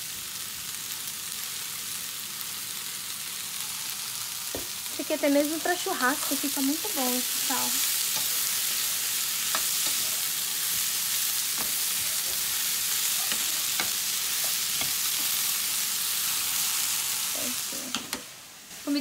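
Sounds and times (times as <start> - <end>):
food sizzling in a frying pan: 0.0 - 19.0
wooden spatula scraping a pan: 7.6 - 15.6.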